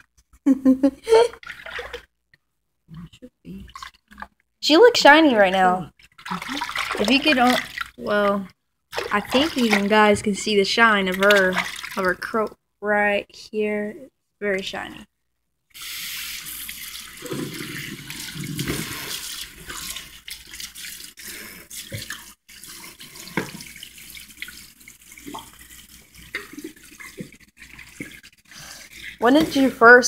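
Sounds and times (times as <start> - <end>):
water splashing: 1.3 - 2.1, 5.0 - 12.5, 15.8 - 30.0
tap water running into sink: 15.8 - 28.4.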